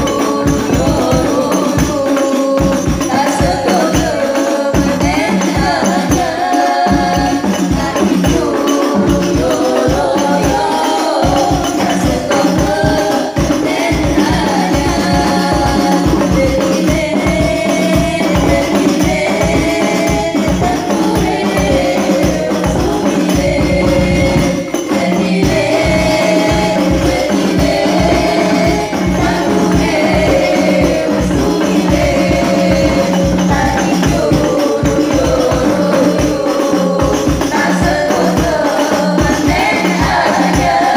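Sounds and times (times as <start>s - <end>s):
frame drums beating: 0.0s - 40.9s
women singing devotional song: 0.0s - 40.9s.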